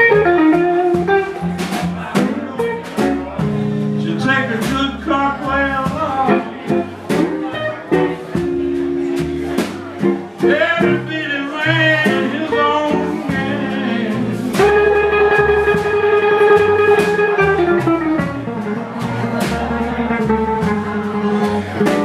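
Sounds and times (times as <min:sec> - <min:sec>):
blues band playing: 0:00.0 - 0:22.0.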